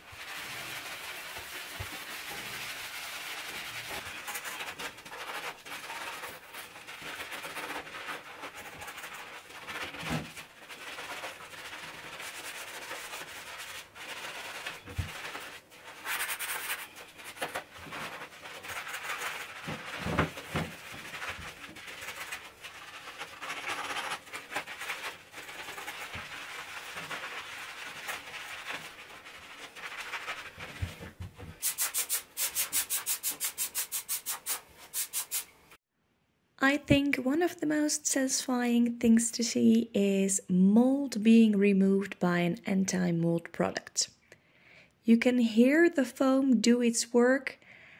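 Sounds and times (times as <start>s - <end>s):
sponge scrubbing a metal tap: 0.0s - 35.6s
spray bottle hisses: 31.6s - 35.6s.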